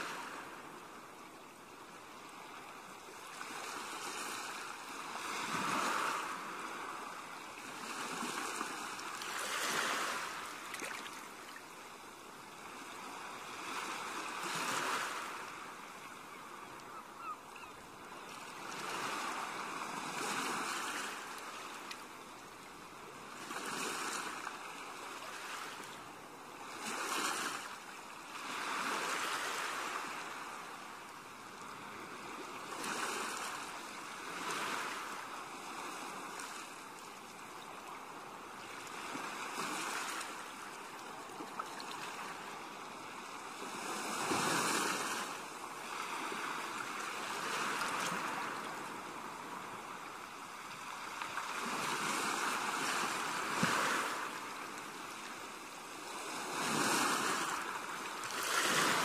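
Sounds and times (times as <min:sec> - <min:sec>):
ocean waves washing in: 0:00.0 - 0:16.0, 0:41.9 - 0:59.0.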